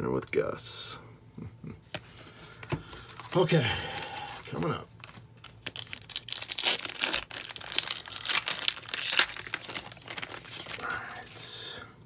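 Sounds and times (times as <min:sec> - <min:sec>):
wrapper tearing and crinkling: 0:03.2 - 0:11.4.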